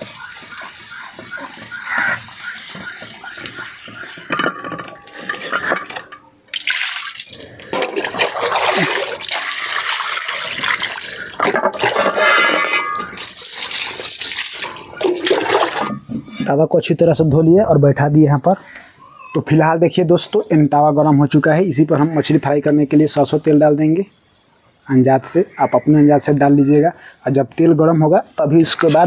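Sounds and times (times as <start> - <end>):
water poured and splashing: 0.0 - 4.3, 6.5 - 16.1
wet scrubbing of a pan: 0.0 - 4.3, 6.6 - 16.4.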